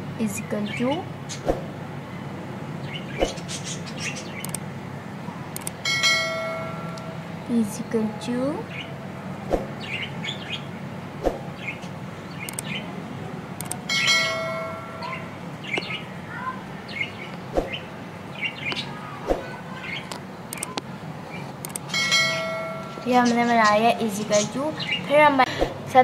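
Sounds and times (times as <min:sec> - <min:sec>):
steady low hum: 0:00.0 - 0:26.0
small birds chirping: 0:00.2 - 0:26.0
sharp clicks: 0:04.4 - 0:04.7, 0:05.5 - 0:05.8, 0:12.4 - 0:12.8, 0:13.6 - 0:13.9, 0:20.0 - 0:20.9, 0:21.5 - 0:22.0
chime-like ring: 0:05.8 - 0:08.7, 0:13.9 - 0:15.5, 0:21.9 - 0:23.6.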